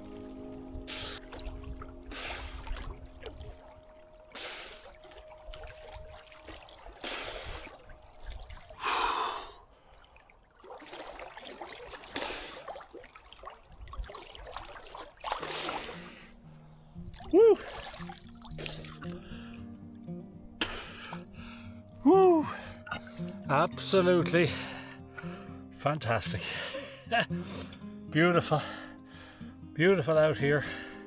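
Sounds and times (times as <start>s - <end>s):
soft background music: 0.0s - 9.5s, 15.4s - 31.0s
water splashing: 0.0s - 19.8s
swimmer gasping breaths: 0.8s - 1.5s, 2.1s - 2.9s, 4.3s - 5.0s, 7.0s - 7.9s, 8.8s - 10.2s, 12.0s - 12.8s, 15.4s - 16.4s, 18.6s - 19.8s, 20.6s - 21.9s
person exclaiming loudly: 22.0s - 22.5s.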